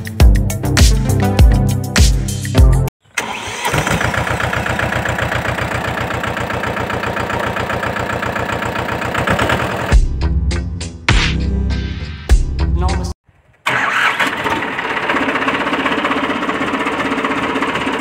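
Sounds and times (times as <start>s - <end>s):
music: 0.0s - 2.9s, 9.9s - 13.2s
engine starting and idling: 3.0s - 10.0s, 13.6s - 18.0s.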